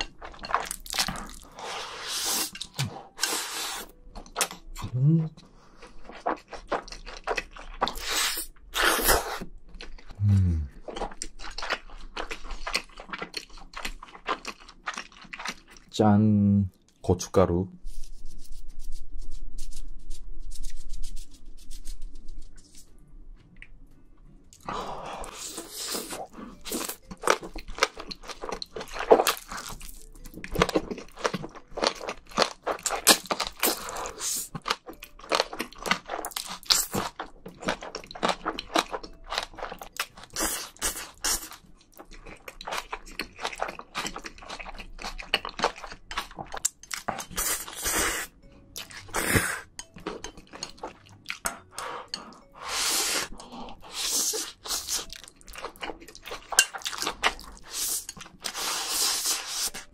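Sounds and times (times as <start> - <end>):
chewing with wet mouth clicks: 5.8 - 8.1, 10.9 - 15.9, 26.0 - 47.8, 49.8 - 52.5, 53.3 - 58.6
noodles being slurped: 57.2 - 59.9.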